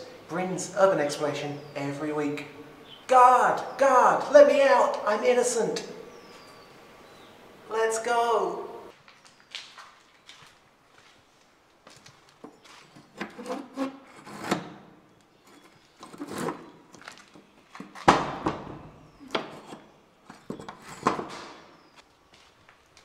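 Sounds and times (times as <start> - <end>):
scrapes and knocks: 12.4 - 14.8, 15.4 - 18.6, 19.2 - 21.6.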